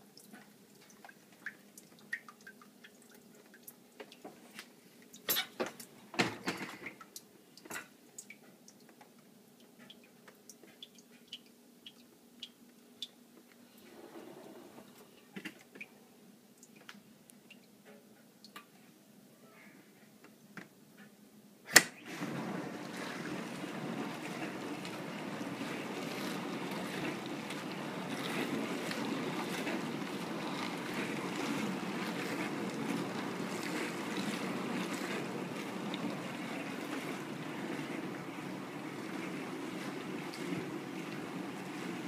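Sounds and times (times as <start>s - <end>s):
dishwasher water rushing: 22.0s - 42.0s.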